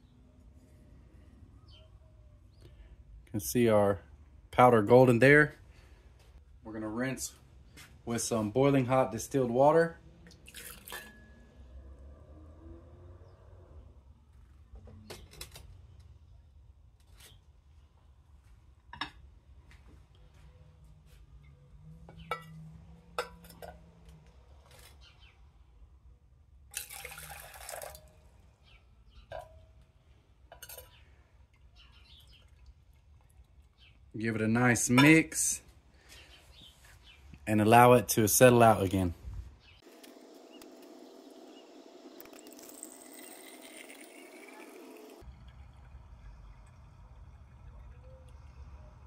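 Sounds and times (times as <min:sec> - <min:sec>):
water pouring into beaker: 0:10.4 - 0:10.9, 0:26.8 - 0:28.1, 0:42.2 - 0:49.0
glass clinking: 0:10.5 - 0:11.4
faint low rumble: 0:45.2 - 0:49.0.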